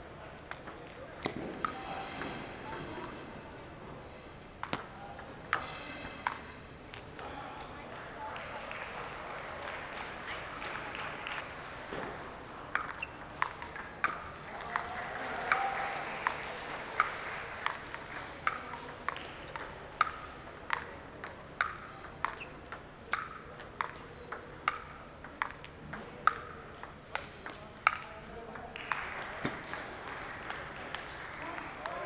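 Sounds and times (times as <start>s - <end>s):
table tennis ball clicking: 4.6s - 7.0s, 12.7s - 14.9s, 18.4s - 29.0s.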